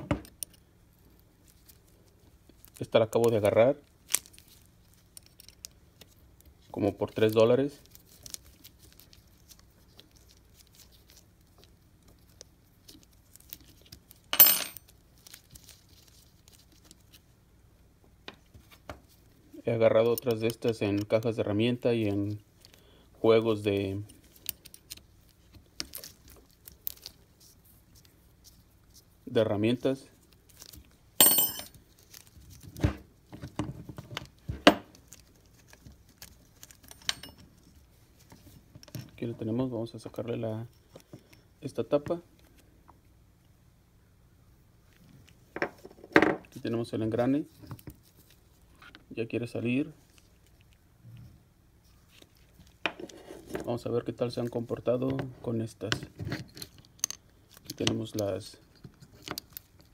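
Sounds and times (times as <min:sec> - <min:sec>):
sharp metallic clink: 0:31.2 - 0:31.7.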